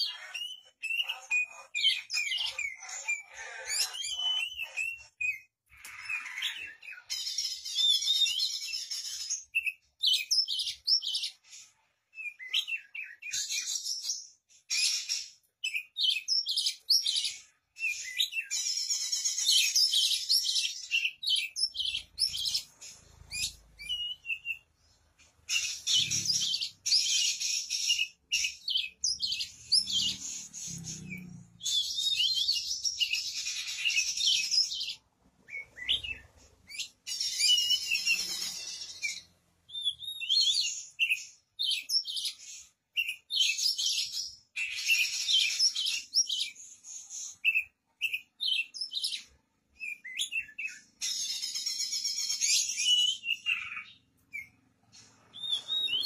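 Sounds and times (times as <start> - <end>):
bird singing whistles and trills: 12.2 - 24.7, 25.5 - 54.6, 55.2 - 56.0.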